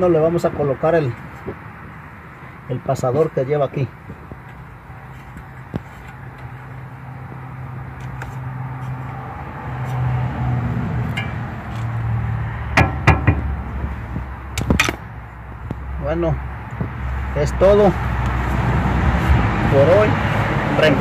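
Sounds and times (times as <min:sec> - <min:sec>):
metal clinks and taps: 0:11.1 - 0:11.4.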